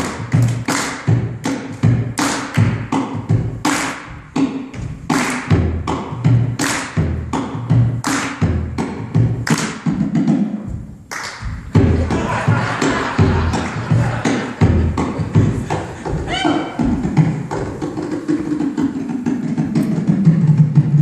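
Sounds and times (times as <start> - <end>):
hand claps: 0.0 - 1.6, 2.2 - 4.1, 5.1 - 5.6, 6.6 - 8.4, 9.4 - 9.9, 11.1 - 11.6.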